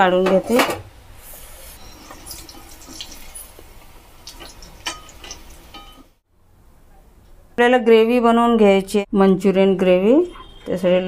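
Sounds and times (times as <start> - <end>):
food sizzling in hot oil: 1.2 - 6.2.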